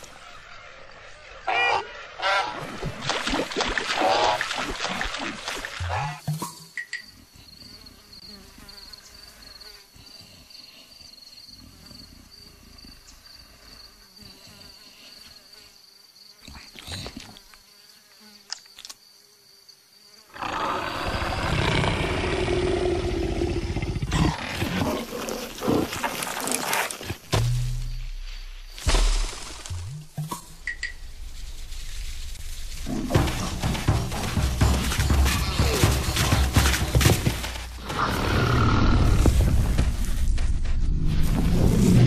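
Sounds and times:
insect drone: 0.0 - 2.8, 5.6 - 42.0
fly buzzing: 13.7 - 27.4
big cat growling: 20.3 - 27.1
sharp scrapes and knocks: 25.9 - 37.8.

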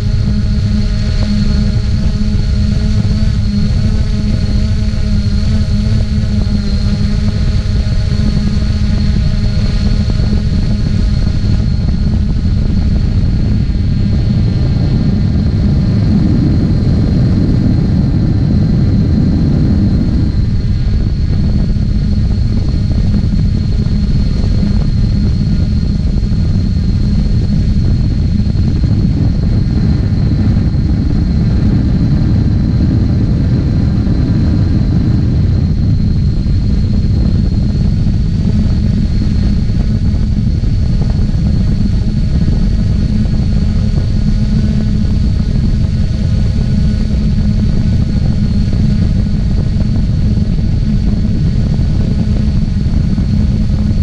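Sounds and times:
drone motors and propellers: 0.0 - 54.0.

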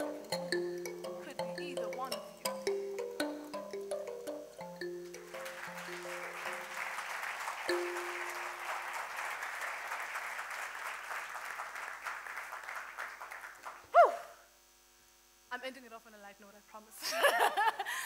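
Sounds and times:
live music: 0.0 - 9.1
audience applauding: 5.1 - 13.9.

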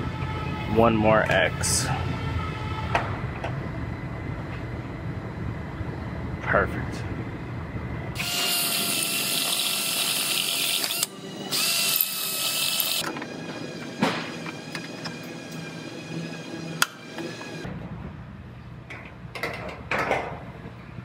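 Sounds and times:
cordless drill running: 8.2 - 13.0.

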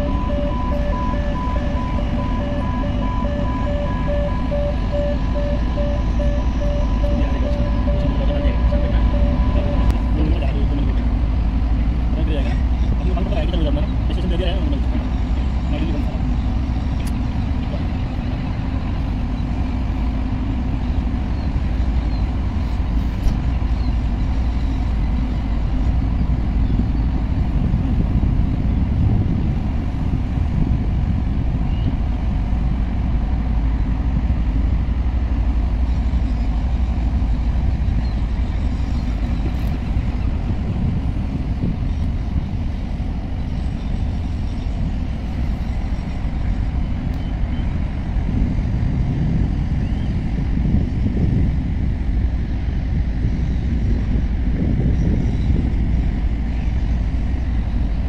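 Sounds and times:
low rumble of machinery: 0.0 - 58.0.

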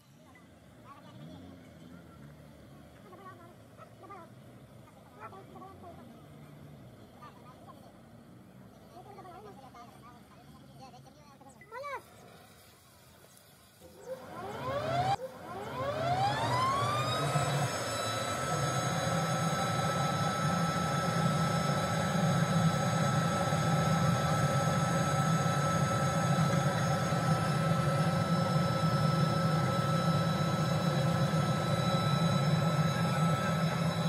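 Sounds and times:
electric motor whine: 13.8 - 34.0
low hum: 13.8 - 34.0.

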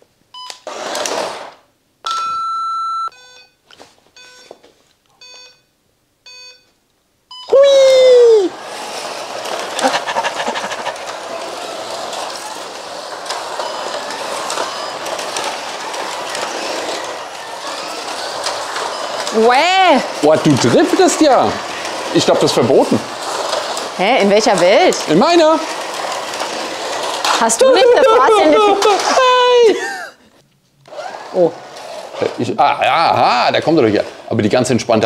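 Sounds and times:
short beeps: 2.1 - 3.6, 5.2 - 6.7, 7.3 - 7.6
loud falling tone: 7.5 - 8.9
slot cars whirring on track: 7.7 - 30.0, 30.8 - 35.0.

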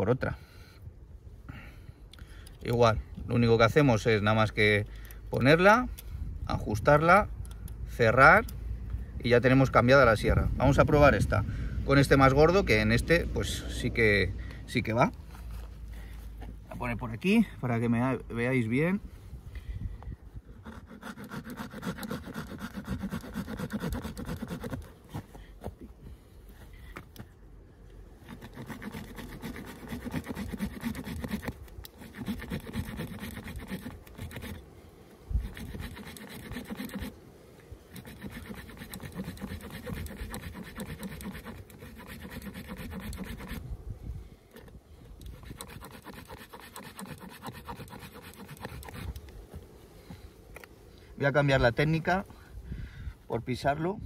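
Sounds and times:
saw blade cutting wet stick: 20.6 - 25.0, 28.2 - 34.6, 35.4 - 37.2, 37.9 - 43.6, 45.2 - 49.2.

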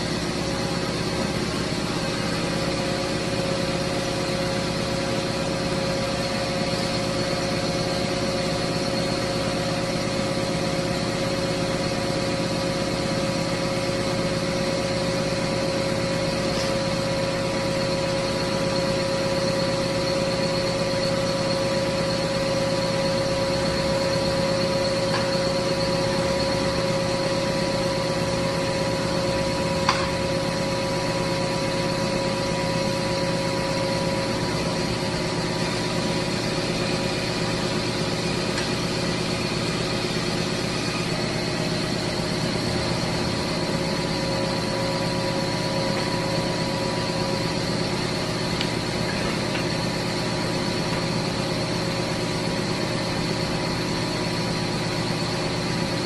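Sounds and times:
cutting machine whine: 0.0 - 56.0.

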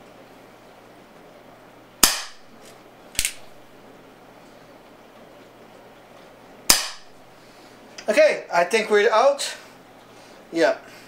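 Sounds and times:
air pistol shot crack: 2.0 - 2.5, 6.7 - 7.1
quieter sharp snap: 2.0 - 3.4, 6.7 - 7.1.

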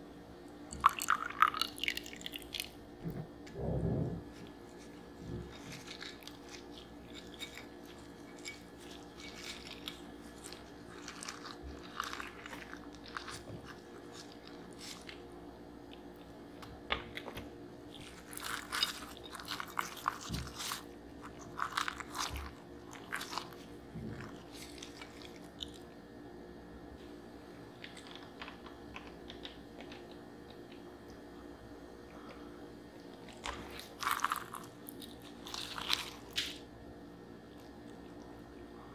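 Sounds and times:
crackling and crunching of crust: 4.2 - 26.0, 27.0 - 31.2, 32.1 - 36.8.

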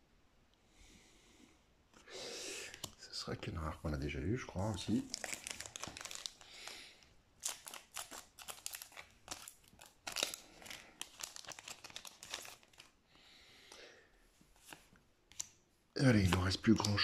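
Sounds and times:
soft rustle of cards: 1.9 - 17.0
foil wrapper crackling: 4.9 - 6.8, 7.4 - 13.0.

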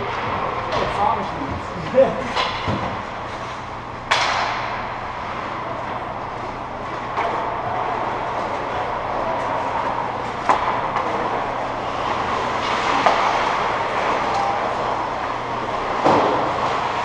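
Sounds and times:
skates scraping on ice: 6.8 - 17.0.

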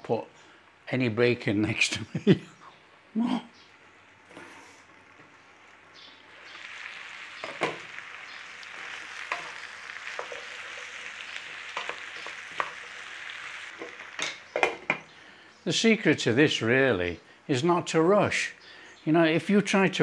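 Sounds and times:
vegetables sizzling in a frying pan: 4.2 - 15.1.

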